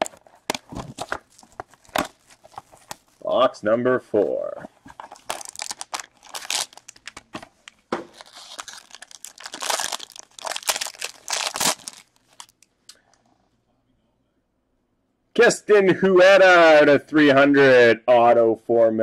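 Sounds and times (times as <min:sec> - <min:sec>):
foil wrapper crinkling and tearing: 0:00.0 - 0:03.2, 0:04.9 - 0:12.7.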